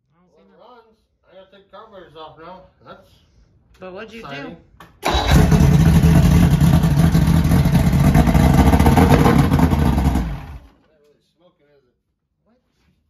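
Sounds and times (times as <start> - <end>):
outboard motor clattery idle: 5.0 - 8.0.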